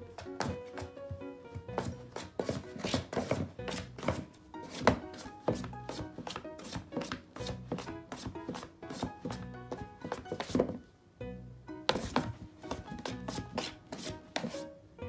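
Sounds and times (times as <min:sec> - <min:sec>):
background music: 0:00.0 - 0:15.0
cat scratching cardboard: 0:13.0 - 0:14.5.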